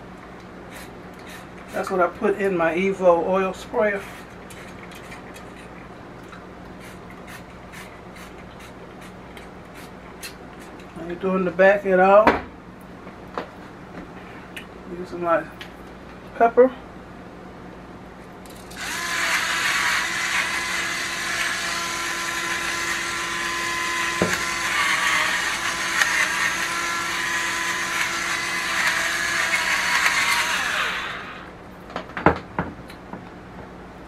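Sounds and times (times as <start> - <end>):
pepper mill motor whine: 18.4 - 31.6.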